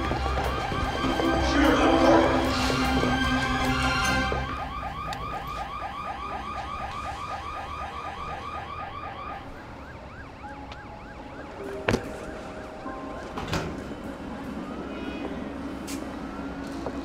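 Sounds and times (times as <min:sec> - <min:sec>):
electronic alarm siren yelping: 0:03.7 - 0:13.3.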